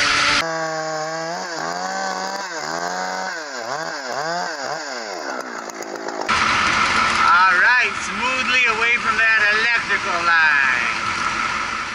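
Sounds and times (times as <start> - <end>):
chainsaw cutting wood: 0.0 - 11.9
loud noisy sound: 3.7 - 11.9.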